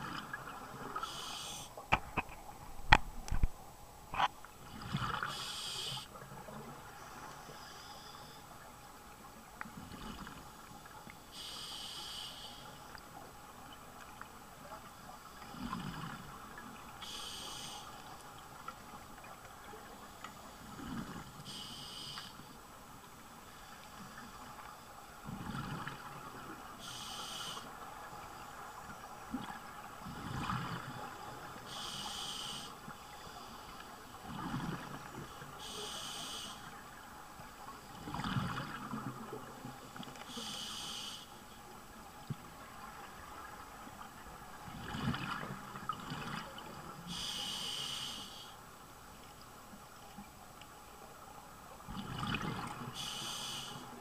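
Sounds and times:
regulator hiss on inhale: 1.0s - 1.8s, 5.2s - 6.1s, 7.2s - 8.5s, 11.3s - 12.9s, 17.0s - 18.1s, 19.9s - 22.6s, 26.8s - 27.7s, 31.6s - 34.1s, 35.3s - 36.8s, 40.2s - 41.6s, 47.1s - 48.6s, 53.0s - 54.0s
exhaled bubbles rumbling: 51.9s - 52.9s.

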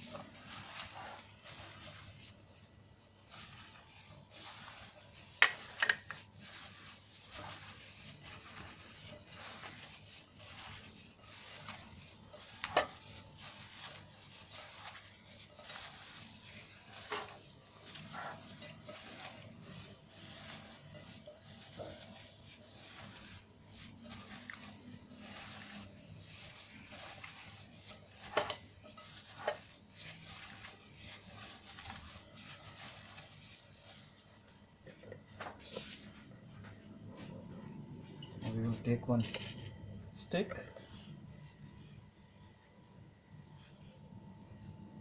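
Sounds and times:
wet squelching of mixing food: 0.0s - 34.8s
plastic glove rustling: 0.0s - 45.0s.

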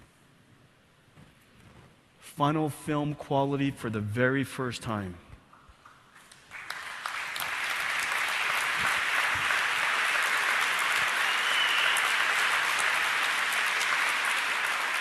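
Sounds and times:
large audience applauding: 5.8s - 15.0s.

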